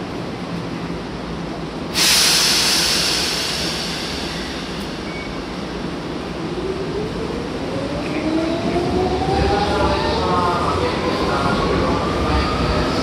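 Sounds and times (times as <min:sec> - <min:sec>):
air brakes hissing: 0:01.9 - 0:06.4.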